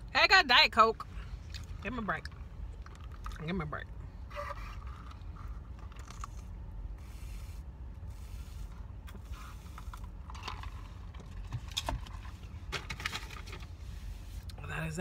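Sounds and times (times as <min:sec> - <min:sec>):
low rumble inside car: 0:00.0 - 0:15.0
faint clicks and rustles: 0:01.4 - 0:03.6.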